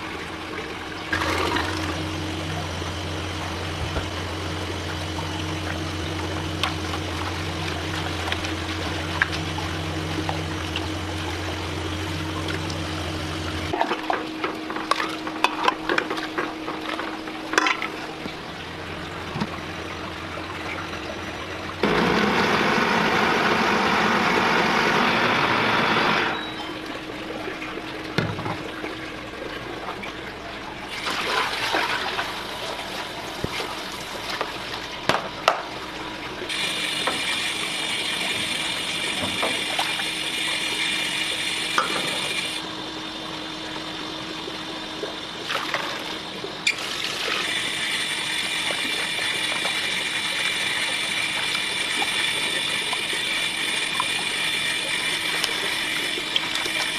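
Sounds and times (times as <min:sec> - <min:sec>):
water sloshing and running: 0:00.0 - 0:56.9
countertop blender running: 0:01.0 - 0:13.7, 0:21.8 - 0:26.5, 0:36.5 - 0:43.2, 0:45.7 - 0:56.9.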